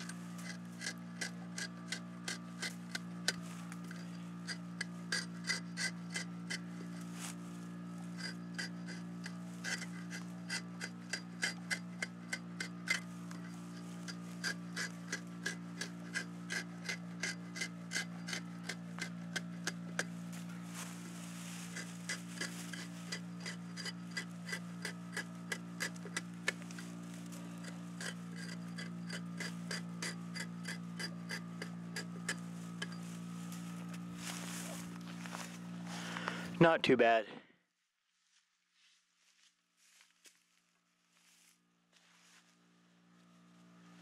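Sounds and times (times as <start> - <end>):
axe blade scraping a log: 0.0 - 36.3.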